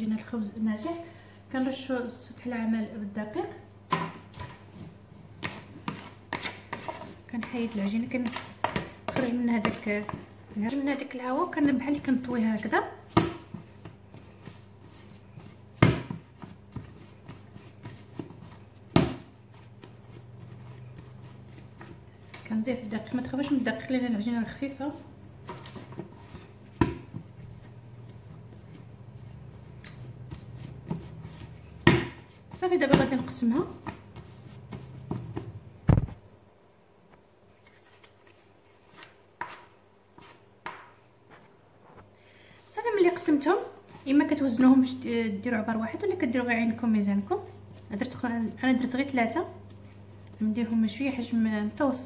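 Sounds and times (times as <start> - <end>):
light pats on dough: 3.9 - 36.2
dough scraper cutting dough: 5.4 - 10.2
dough thumping on worktop: 13.0 - 14.7, 15.4 - 22.6, 25.4 - 27.4, 29.8 - 36.2.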